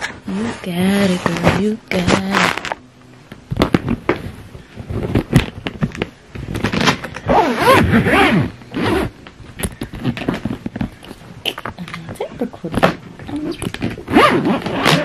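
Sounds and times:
suitcase zipper being pulled: 6.7 - 9.1, 14.0 - 15.0.

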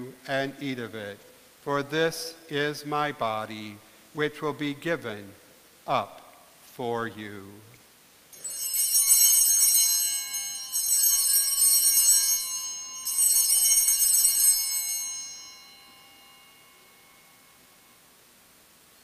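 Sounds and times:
altar bells ringing: 8.3 - 18.3.

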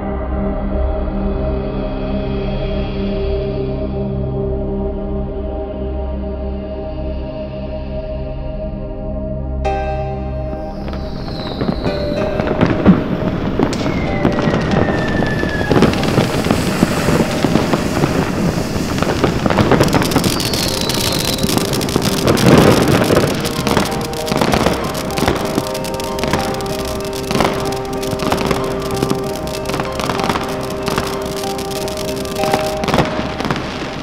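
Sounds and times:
background music: 0.0 - 34.0
ground fountain firework crackling: 10.6 - 34.0.

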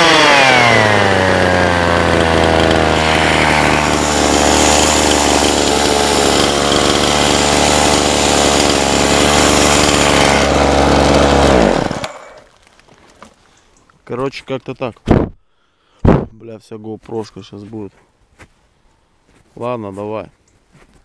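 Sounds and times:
chainsaw idling and winding down: 0.0 - 12.6.

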